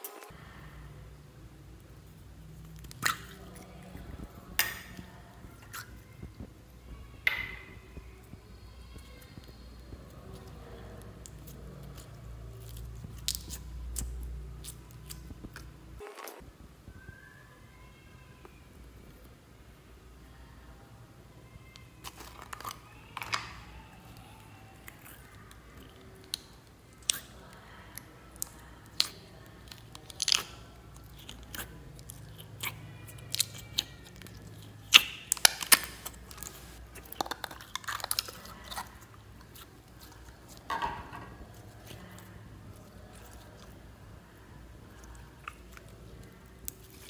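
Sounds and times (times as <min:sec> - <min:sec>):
slime stretching sticky pops: 0:28.3 - 0:40.7.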